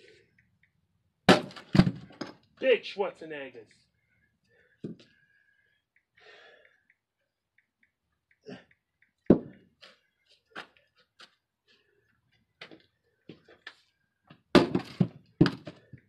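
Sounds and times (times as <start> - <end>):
axe splitting firewood: 1.3 - 2.4, 9.3 - 9.6, 14.4 - 16.0.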